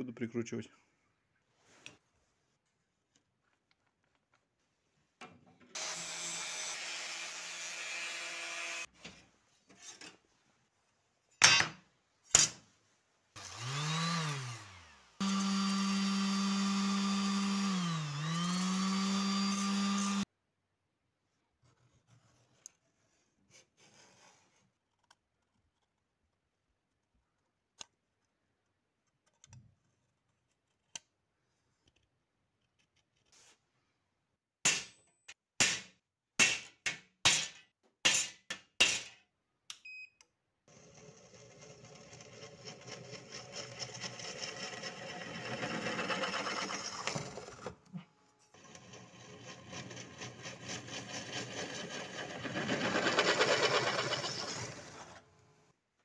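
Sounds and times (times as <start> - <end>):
electric drill boring metal: 5.8 - 8.9, 13.4 - 20.2, 48.6 - 55.0.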